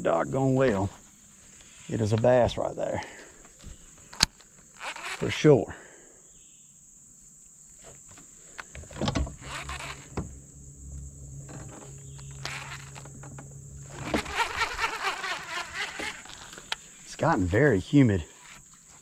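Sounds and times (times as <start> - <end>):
crickets chirring: 0.0 - 19.0
electric boat motor humming: 8.6 - 17.0.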